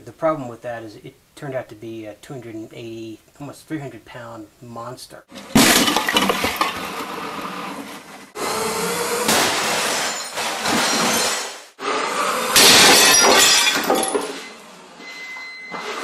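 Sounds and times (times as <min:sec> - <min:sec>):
crash of wood and debris: 0:05.3 - 0:08.3, 0:09.3 - 0:11.6, 0:12.6 - 0:14.6
glass breaking: 0:05.5 - 0:07.0, 0:09.3 - 0:11.6, 0:12.6 - 0:14.6.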